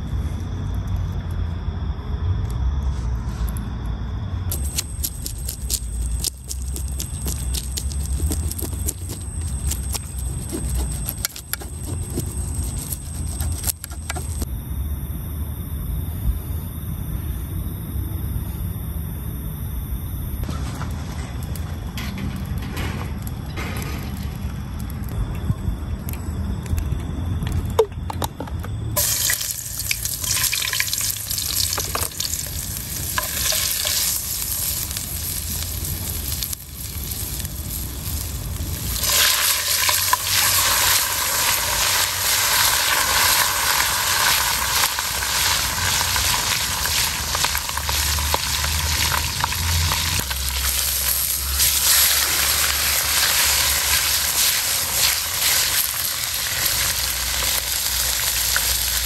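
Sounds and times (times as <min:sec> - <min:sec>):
fish frying in oil: 0:29.0 - 0:59.0
oil sizzling in a wok: 0:29.0 - 0:59.0.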